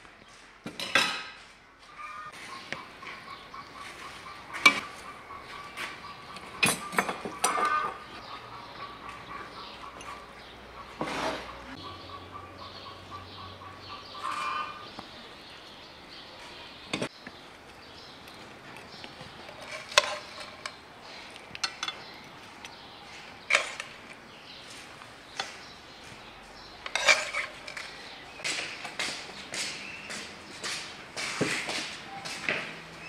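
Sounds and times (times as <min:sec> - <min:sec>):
dishes clinking on table: 0:00.7 - 0:01.4
spoons scraping plates and pan: 0:10.9 - 0:11.8, 0:19.4 - 0:22.1, 0:26.8 - 0:28.2.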